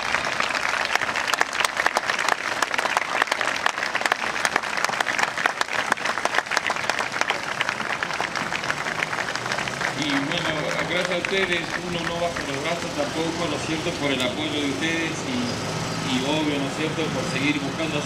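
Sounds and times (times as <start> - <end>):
crowd applauding: 0.0 - 15.1.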